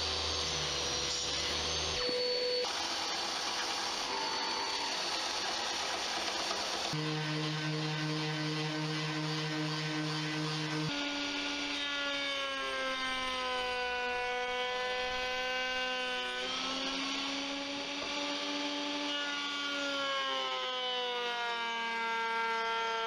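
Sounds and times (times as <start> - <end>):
router cutting wood: 0.0 - 23.0
electric sander humming: 4.9 - 21.0.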